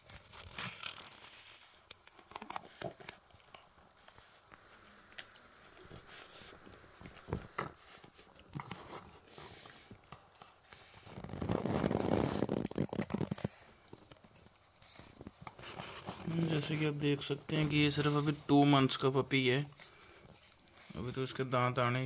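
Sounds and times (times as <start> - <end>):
puppy crunching on bone: 0.0 - 16.8
rustling: 0.0 - 22.0.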